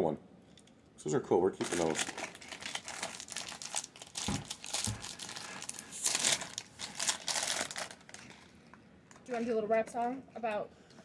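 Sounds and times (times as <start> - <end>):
plastic wrapper crinkling and ripping: 1.6 - 8.6.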